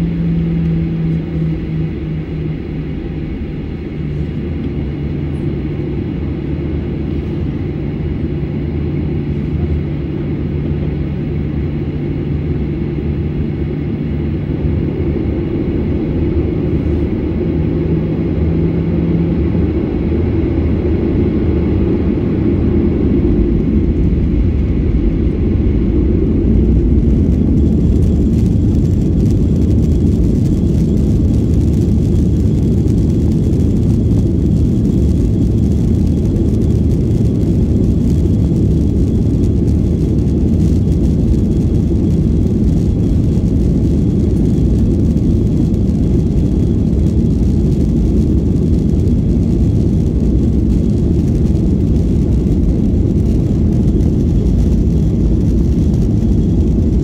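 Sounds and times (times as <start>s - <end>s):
jet engines rumbling in cabin: 0.0s - 57.0s.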